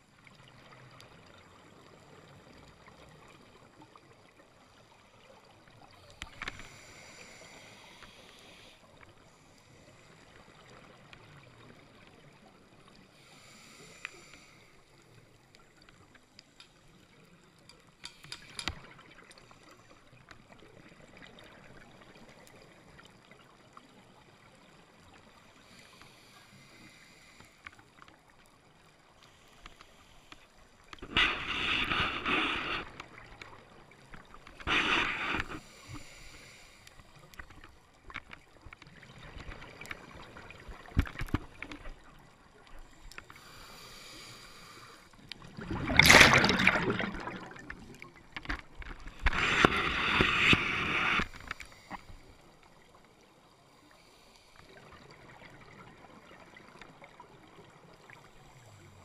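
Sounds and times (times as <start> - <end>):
faint clicks: 6.0 - 6.9, 14.0 - 20.5, 27.4 - 28.5, 29.2 - 40.0, 40.7 - 52.7
hissing regulator inhalations: 6.3 - 10.1, 13.1 - 14.8, 25.6 - 27.6, 29.2 - 33.2, 34.5 - 37.4, 43.2 - 45.2, 49.2 - 52.4
gush of exhaled bubbles: 45.4 - 48.2.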